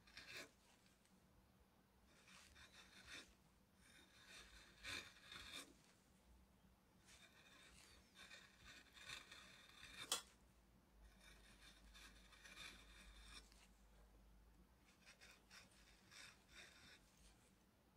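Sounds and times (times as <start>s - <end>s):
gouge scraping wood: 0.0s - 0.6s, 2.1s - 5.8s, 7.1s - 10.2s, 11.1s - 13.7s, 14.9s - 17.1s.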